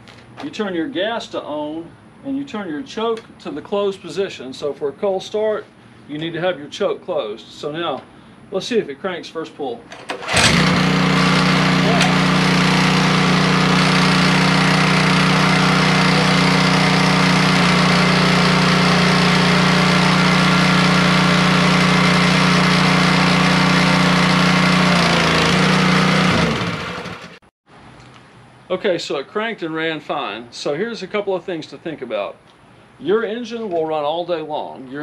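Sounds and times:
small engine running and winding down: 10.3s - 27.4s.

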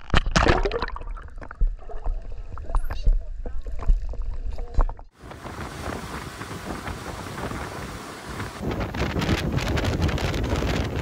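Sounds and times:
wind buffeting microphone: 5.2s - 11.0s.

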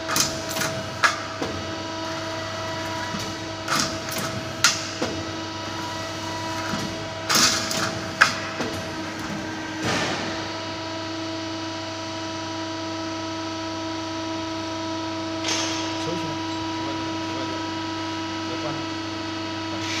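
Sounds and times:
hydraulic pump motor humming: 0.0s - 20.0s.

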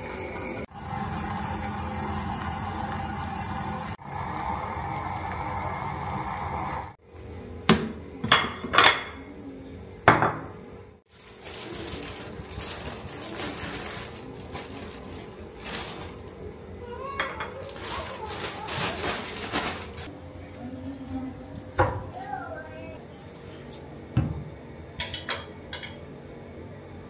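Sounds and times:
jam boiling bubbling hiss: 0.0s - 7.1s, 11.0s - 20.1s
kitchenware clinking: 8.2s - 9.3s, 10.0s - 10.6s, 17.1s - 18.0s, 25.0s - 26.0s
handling sounds on counter: 11.1s - 16.3s, 17.2s - 20.1s.

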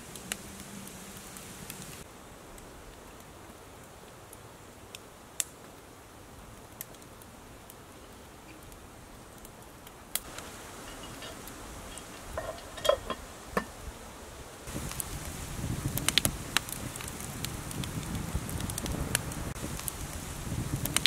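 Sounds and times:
campfire coals crackling: 0.0s - 21.0s
pot lid and handle clanking: 10.8s - 13.7s.

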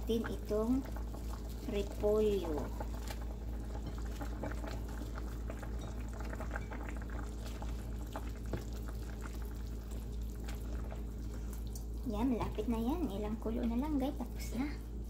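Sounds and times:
ladle stirring: 0.0s - 12.0s
soup boiling and bubbling: 0.0s - 15.0s
steady low hum: 0.0s - 15.0s.

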